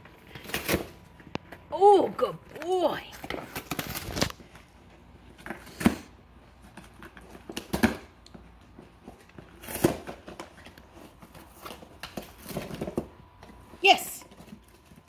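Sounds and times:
cardboard crackling and rustling: 2.6s - 15.0s
cardboard crunches: 3.1s - 13.6s.

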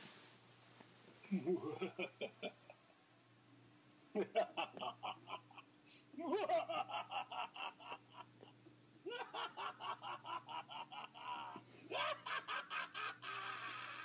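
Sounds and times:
pulsed laughter: 1.3s - 2.8s, 4.2s - 8.5s, 9.1s - 14.0s.

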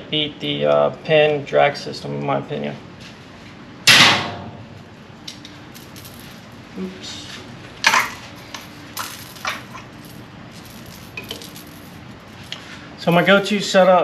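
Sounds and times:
metal tackle clattering: 9.0s - 12.0s.

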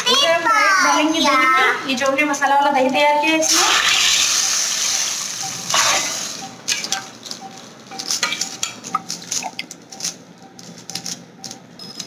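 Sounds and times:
hot oil sizzling: 3.5s - 6.4s.

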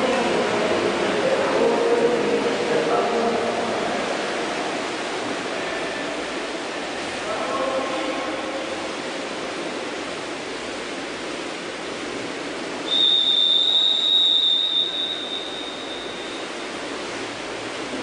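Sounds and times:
pool hall hiss: 0.0s - 18.0s
long whistle blast: 12.9s - 16.6s.

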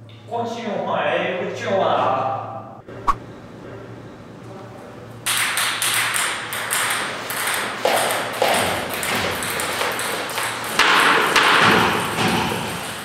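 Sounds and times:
ping pong ball clicking: 5.3s - 11.6s.

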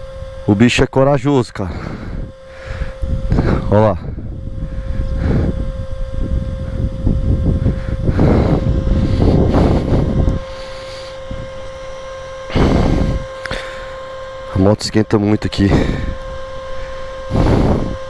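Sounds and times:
motorcycle engine running: 0.0s - 0.7s, 1.6s - 18.0s
wind buffeting microphone: 1.7s - 13.4s, 15.5s - 18.0s.

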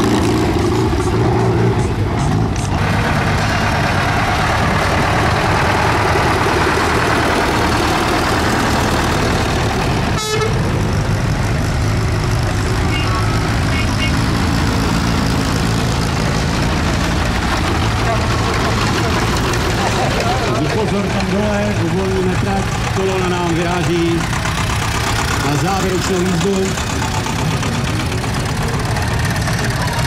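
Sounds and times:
tractor engines running: 0.0s - 30.0s
high-pitched horn toots: 10.2s - 10.6s.

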